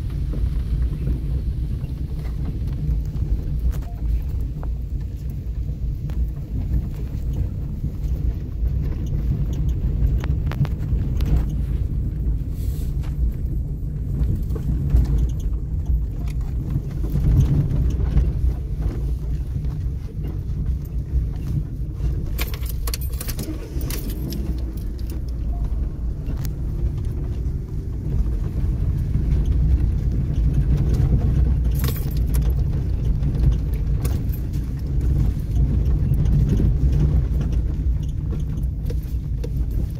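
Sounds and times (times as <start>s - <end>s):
car engine and tyres rumbling: 0.0s - 39.9s
rattles and jangles: 22.2s - 26.4s, 31.6s - 32.7s, 33.4s - 35.6s.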